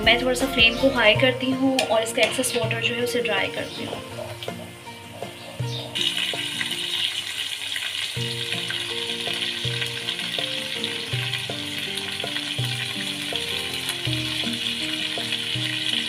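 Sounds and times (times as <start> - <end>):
background music with held notes: 0.0 - 16.0
meat sizzling in a wok: 4.1 - 16.0.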